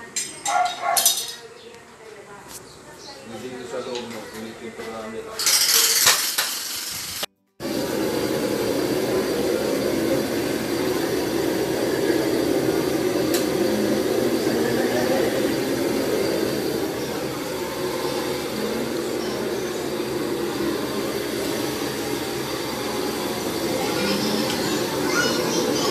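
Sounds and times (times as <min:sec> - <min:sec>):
heat gun blowing air: 0:06.2 - 0:08.6.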